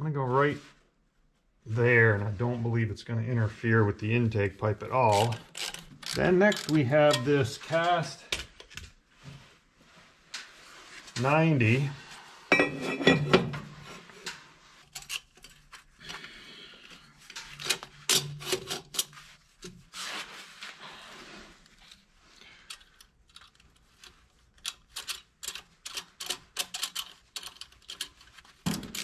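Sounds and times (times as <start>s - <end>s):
metal clinking and scraping: 5.0s - 8.2s, 12.5s - 15.9s, 17.2s - 19.8s.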